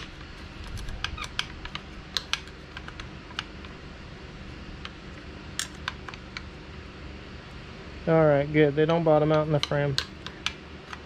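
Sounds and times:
low steady hum: 0.0s - 11.0s
metal clicks of hand tool on bolts: 9.2s - 11.0s.

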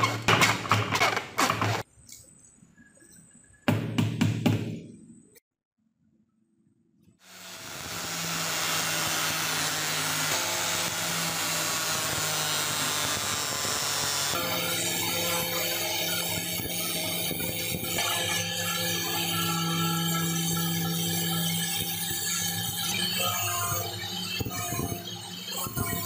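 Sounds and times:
hacksaw cutting wood: 7.2s - 25.4s
angle grinder sanding: 7.2s - 26.0s.

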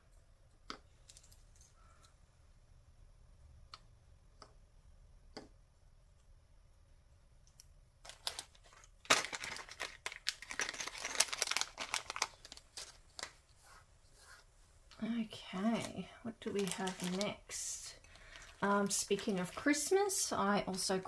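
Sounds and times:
plastic bag crinkling: 8.0s - 13.4s, 15.8s - 20.3s.

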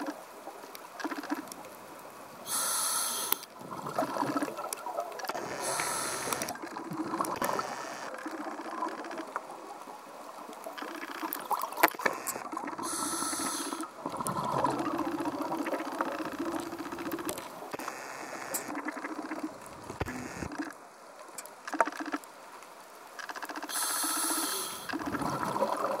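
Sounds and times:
regulator hissing inhalations: 2.4s - 3.5s, 5.5s - 6.6s, 12.8s - 13.9s, 23.7s - 25.0s
bubbling exhalations: 12.4s - 17.2s, 24.7s - 26.0s.

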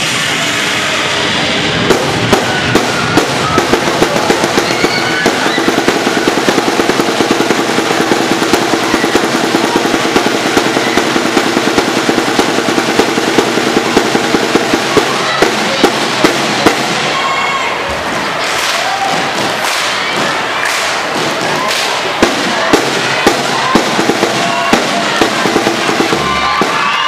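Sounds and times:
drums beaten in fast rolls: 0.0s - 27.0s
large crowd noise: 0.0s - 27.0s.

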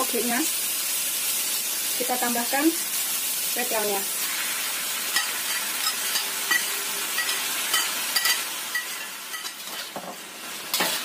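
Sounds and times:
noodles sizzling in a wok: 0.0s - 11.0s
metal spatula clinking on wok: 5.2s - 9.6s.

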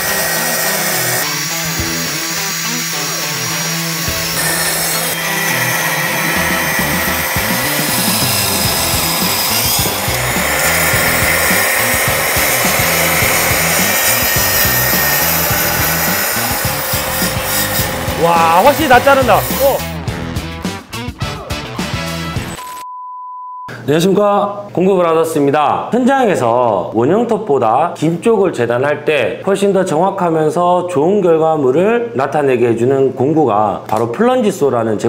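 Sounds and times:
track saw cutting wood: 0.0s - 20.0s
background music: 0.0s - 22.8s.

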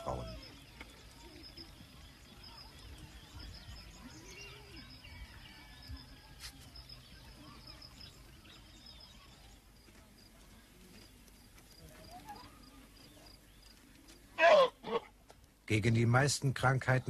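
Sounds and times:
bird chirps: 0.0s - 9.9s.

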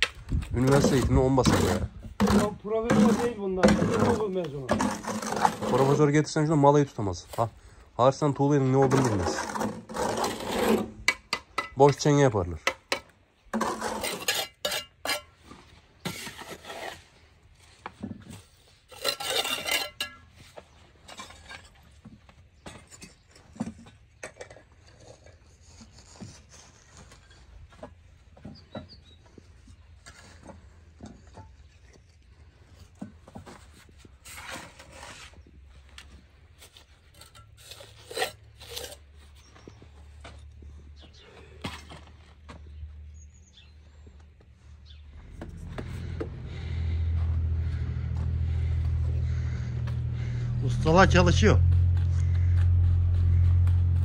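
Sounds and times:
trowels scraping mortar: 0.6s - 7.5s, 8.6s - 17.4s, 18.2s - 21.9s, 33.9s - 39.6s
trowels clinking on bricks: 18.9s - 20.4s.

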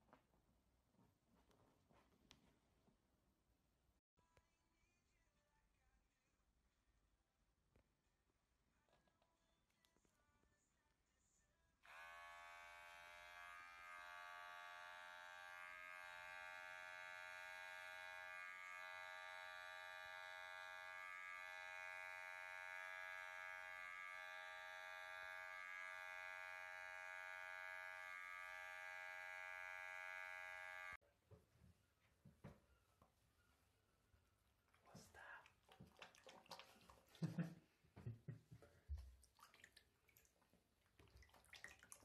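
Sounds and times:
electric hair clippers buzzing: 11.8s - 31.0s.

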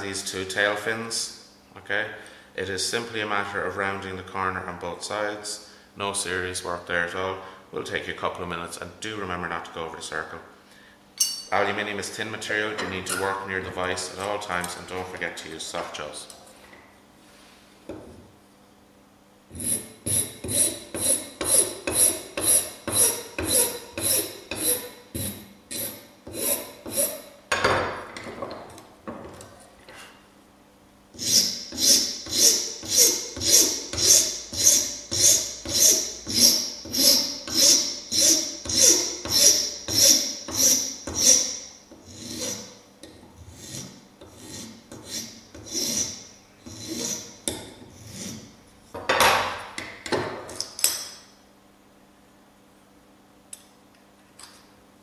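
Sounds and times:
hand file rasping on metal sheet: 19.5s - 27.3s, 31.2s - 42.8s, 43.5s - 47.4s.

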